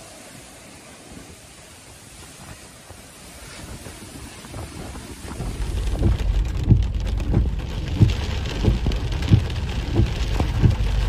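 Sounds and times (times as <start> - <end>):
heavy rain pelting a car: 0.0 - 11.0
windscreen wipers thudding: 4.5 - 11.0.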